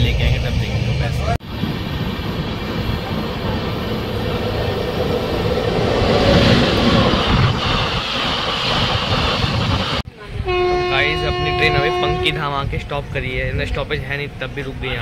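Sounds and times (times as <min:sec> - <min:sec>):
train wheels rumbling and rattling: 0:00.0 - 0:10.1.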